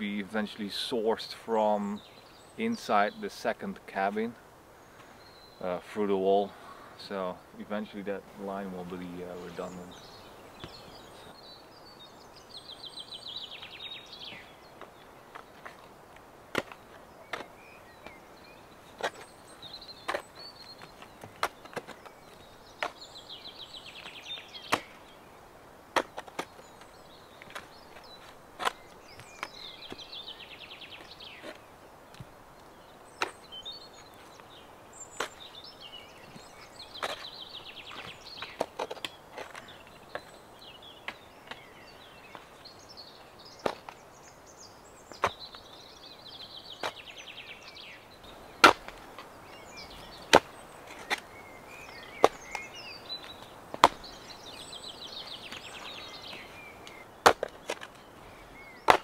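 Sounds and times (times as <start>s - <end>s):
songbird trilling: 49.4s - 57.2s.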